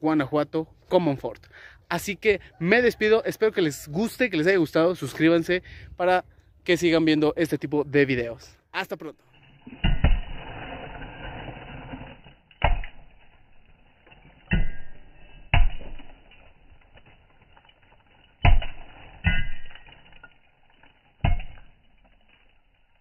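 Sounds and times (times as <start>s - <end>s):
hand tools striking stone: 9.7s - 10.4s, 12.4s - 23.0s.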